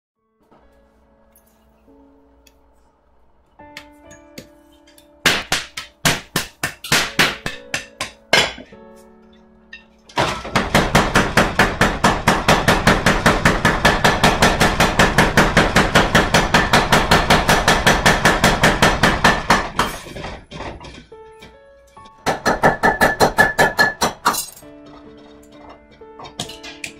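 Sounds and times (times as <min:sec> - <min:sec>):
power hammer pounding steel: 0:05.2 - 0:08.7, 0:10.1 - 0:21.5, 0:22.2 - 0:26.9.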